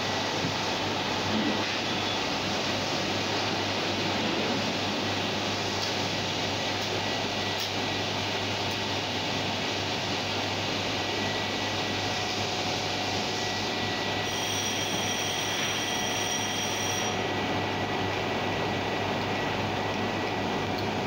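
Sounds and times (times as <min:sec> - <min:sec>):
faint constant high tone: 0:13.2 - 0:17.9.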